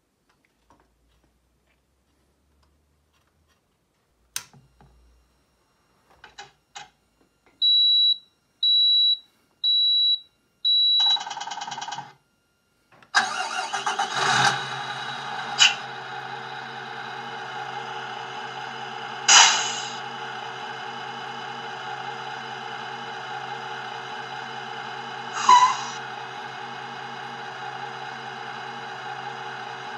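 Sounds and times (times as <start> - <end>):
click: 4.3 - 4.6
diesel engine revving and idling: 13.2 - 29.9
recorded starter cranking: 13.2 - 29.9
short high beeps: 25.4 - 26.0.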